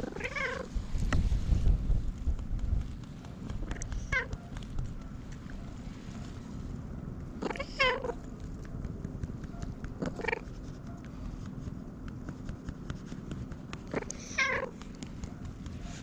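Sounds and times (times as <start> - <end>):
cat giving pigeon-like calls: 0.0 - 0.8, 3.6 - 4.4, 7.3 - 8.3, 9.9 - 10.6, 13.8 - 14.8.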